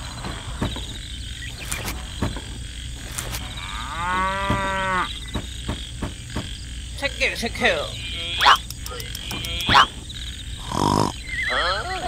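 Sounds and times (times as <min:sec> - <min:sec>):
cow mooing: 0:03.5 - 0:05.2
faint clicks: 0:08.5 - 0:09.8.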